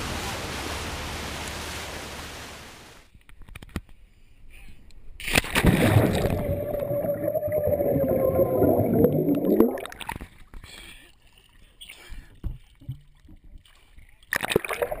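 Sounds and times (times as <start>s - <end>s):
splash into water: 5.2s - 10.2s, 14.3s - 15.0s
muffled underwater bubbling: 5.6s - 10.1s.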